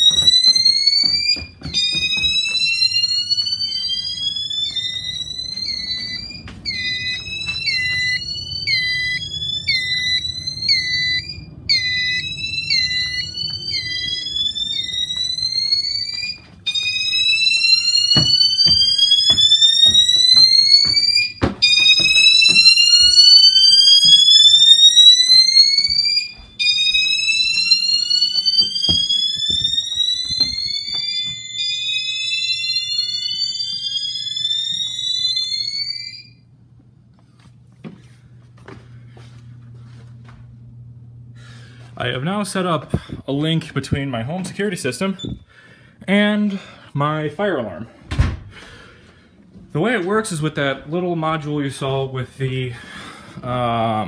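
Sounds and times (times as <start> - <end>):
alarm sounder chirping: 0.0 - 36.5
fire alarm horn whooping: 0.0 - 36.7, 44.5 - 45.7.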